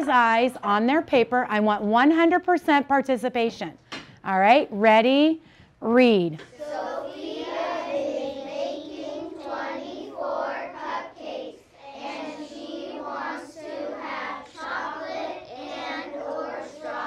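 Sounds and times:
children reading aloud in unison: 0:06.5 - 0:17.0.

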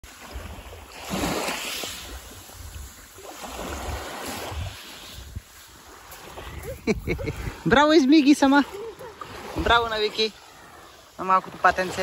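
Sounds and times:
waves washing onto pebbles: 0:00.0 - 0:12.0
wind rumble on microphone: 0:01.9 - 0:07.8.

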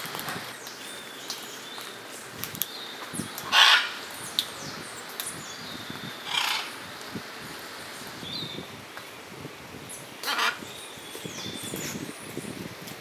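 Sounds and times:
steady background hiss: 0:00.0 - 0:13.0
parrot harsh squawk: 0:03.5 - 0:04.0, 0:06.3 - 0:06.7, 0:10.3 - 0:10.6.

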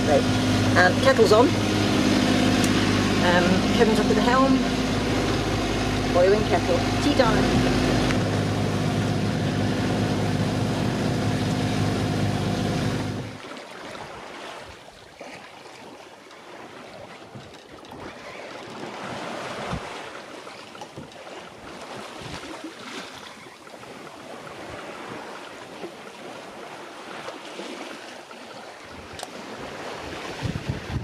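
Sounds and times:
sea waves washing: 0:00.0 - 0:31.0
wind buffeting microphone: 0:29.0 - 0:31.0.

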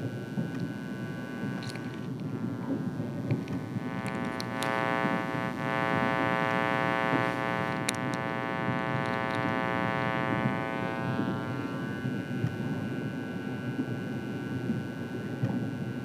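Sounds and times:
sharp clicks: 0:03.3 - 0:05.2, 0:06.4 - 0:09.7.

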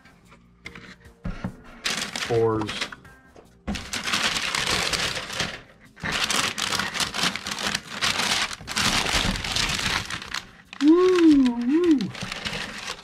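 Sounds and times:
tissue paper rustling and crinkling: 0:01.7 - 0:02.9, 0:03.7 - 0:13.0.

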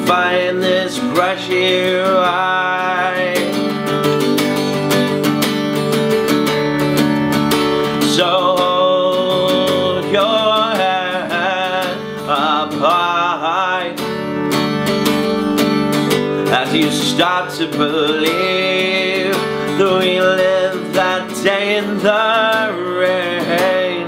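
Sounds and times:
man singing: 0:00.0 - 0:04.3, 0:07.8 - 0:14.4, 0:16.3 - 0:24.0
acoustic guitar strumming: 0:00.0 - 0:24.0.

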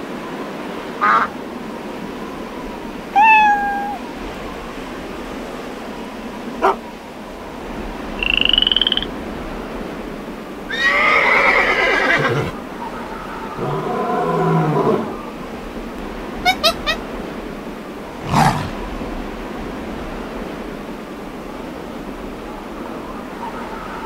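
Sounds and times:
brief trilling animal call: 0:03.2 - 0:04.0, 0:16.4 - 0:17.0
chimpanzee calls: 0:03.2 - 0:04.0, 0:16.4 - 0:17.0, 0:18.2 - 0:18.8
low drawn-out animal call: 0:03.2 - 0:04.1, 0:13.3 - 0:15.2, 0:16.4 - 0:17.0, 0:18.2 - 0:18.8
horse whinnying: 0:10.7 - 0:12.5, 0:18.2 - 0:18.8.

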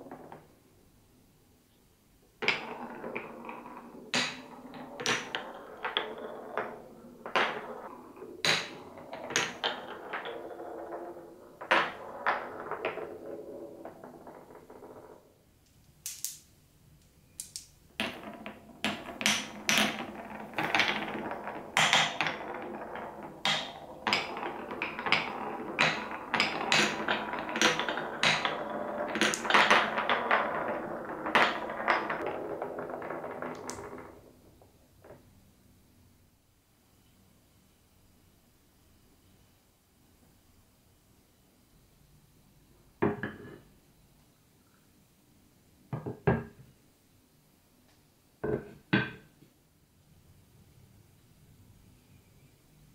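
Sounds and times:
marbles rolling on wood: 0:00.0 - 0:00.5, 0:02.4 - 0:16.5, 0:17.4 - 0:35.4
marbles clacking against blocks: 0:02.4 - 0:15.2, 0:15.8 - 0:35.2.

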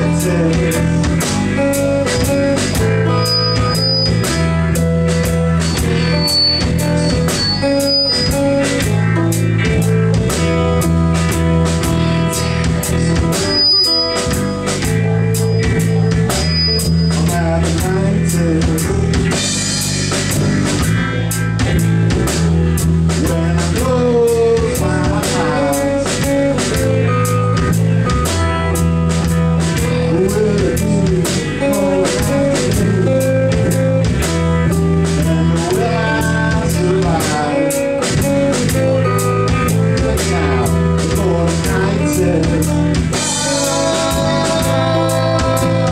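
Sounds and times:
live rock band playing: 0:00.0 - 0:45.9
bent guitar note: 0:01.1 - 0:17.6.

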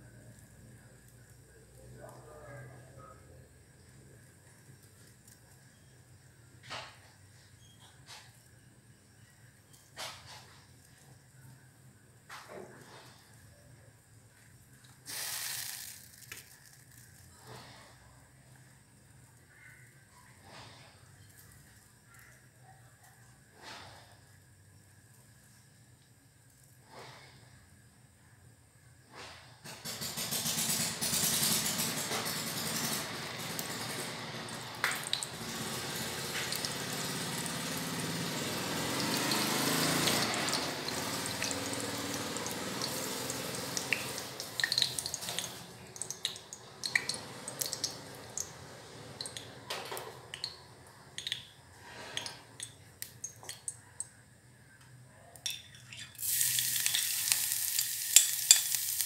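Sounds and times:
food sizzling in hot oil: 0:15.0 - 0:17.2, 0:30.2 - 0:49.6, 0:55.8 - 0:59.0
utensil taps and clicks: 0:51.2 - 0:51.6.

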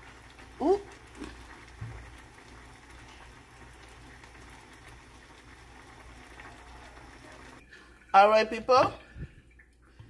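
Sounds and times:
pot simmering bubbling hiss: 0:00.0 - 0:10.0.

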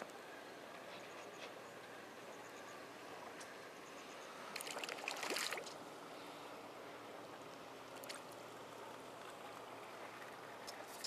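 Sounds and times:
seawater lapping: 0:03.2 - 0:11.0
fish splashing at surface: 0:04.6 - 0:05.8.

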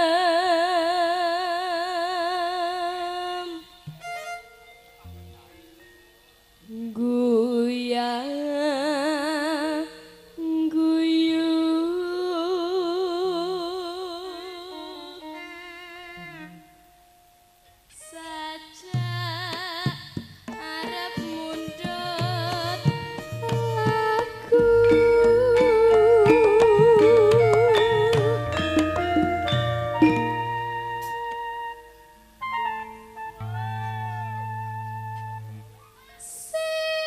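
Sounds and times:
woman singing with vibrato: 0:00.0 - 0:03.9, 0:06.6 - 0:16.8, 0:17.9 - 0:31.9, 0:36.0 - 0:37.0
struck gamelan notes: 0:21.0 - 0:36.2
band with drums and bass: 0:21.4 - 0:31.3.

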